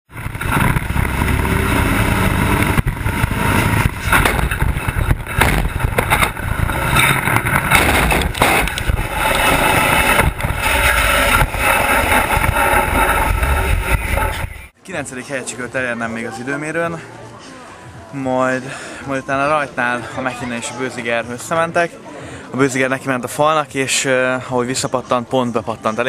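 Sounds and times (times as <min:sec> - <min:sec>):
diesel engine: 0:00.0 - 0:14.7
loud bangs and crashes: 0:00.1 - 0:14.7.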